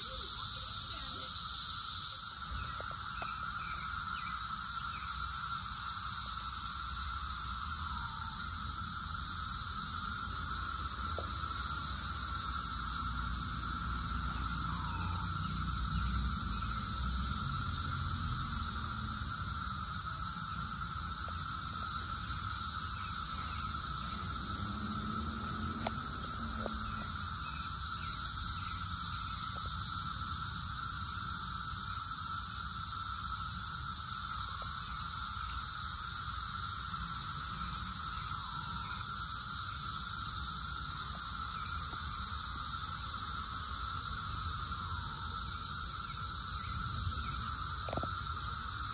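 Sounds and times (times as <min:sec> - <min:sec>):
cicadas chorus drone: 0:00.0 - 0:48.9.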